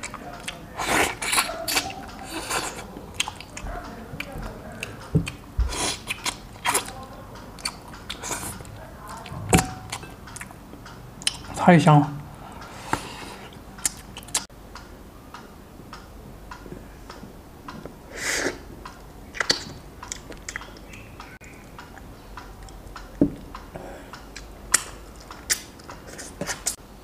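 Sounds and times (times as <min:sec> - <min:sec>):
person chewing meat off a bone: 0:00.0 - 0:07.0.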